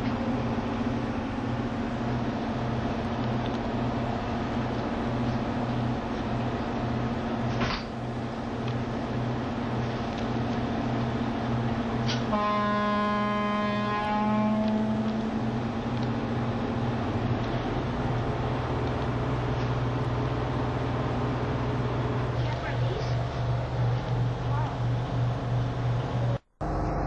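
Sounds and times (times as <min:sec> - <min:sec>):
ferry engines droning: 0:00.0 - 0:27.0
loud horn-like tone: 0:12.3 - 0:15.2.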